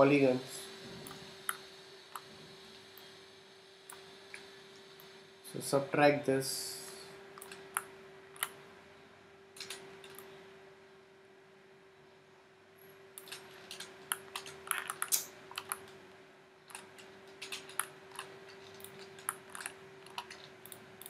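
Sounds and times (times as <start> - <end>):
faint steady hum: 0.0 - 21.0
keyboard and mouse clicking: 13.2 - 16.0, 16.7 - 20.8.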